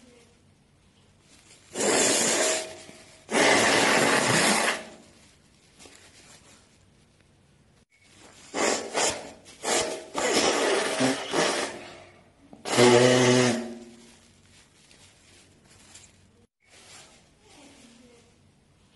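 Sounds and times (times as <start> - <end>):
person blowing nose: 1.7 - 5.1, 8.4 - 11.8, 12.7 - 14.0.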